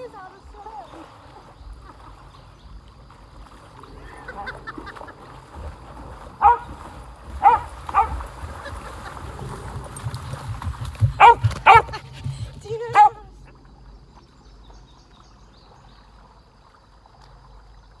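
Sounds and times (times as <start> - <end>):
dog barking: 6.4 - 6.7, 7.4 - 8.2, 11.2 - 12.0, 13.0 - 13.2.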